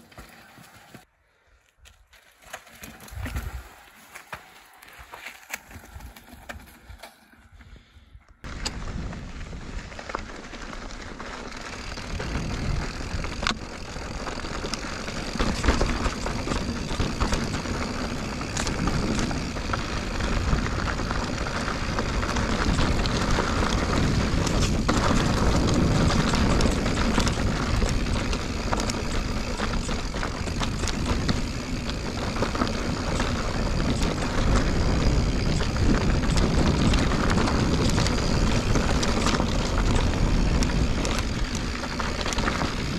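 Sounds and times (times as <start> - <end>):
bike tyre noise: 0.0 - 42.9
bike clicks and rattles: 1.8 - 42.9
wind rushing on microphone: 15.4 - 42.9.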